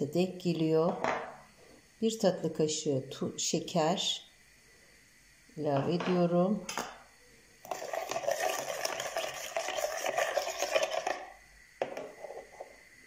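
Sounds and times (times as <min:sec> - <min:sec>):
spoon scraping a bowl: 0:07.7 - 0:12.7.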